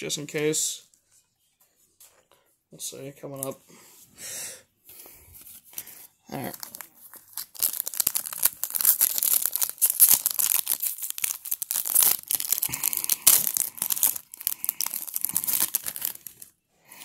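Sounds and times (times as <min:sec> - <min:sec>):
foil wrapper tearing and crinkling: 0:05.7 - 0:16.5.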